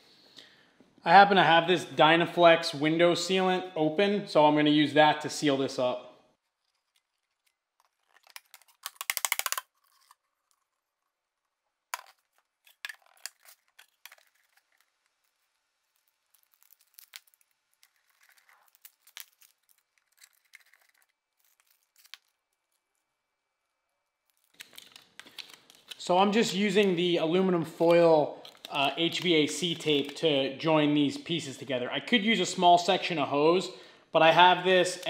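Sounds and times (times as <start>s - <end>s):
foil tape crinkling and tearing: 6.5s - 11.1s, 12.1s - 23.1s, 24.2s - 26.1s.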